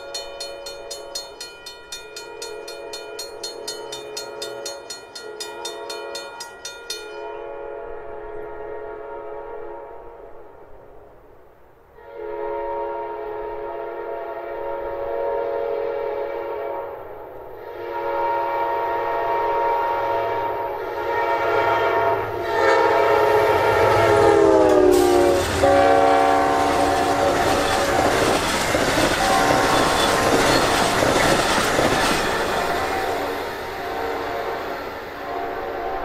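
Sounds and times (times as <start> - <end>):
train rushing by on rails: 0.0 - 8.7, 13.2 - 36.0
locomotive air horn blasts: 7.3 - 10.5, 12.0 - 31.0, 32.3 - 36.0.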